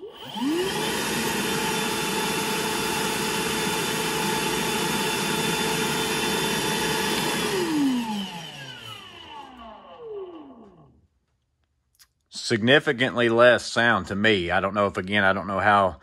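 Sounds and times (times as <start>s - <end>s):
vacuum motor whining: 0.0s - 11.0s.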